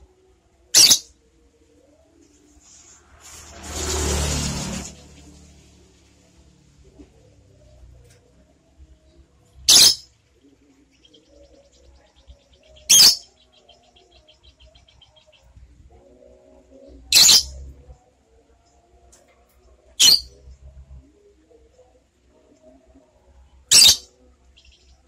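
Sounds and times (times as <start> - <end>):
bird shrill calls: 0.8 - 1.1, 9.7 - 10.0, 12.9 - 13.3, 17.2 - 17.5, 20.0 - 20.3, 23.7 - 24.0
bird rapid chatter: 17.2 - 17.5, 20.0 - 20.3, 23.7 - 24.0.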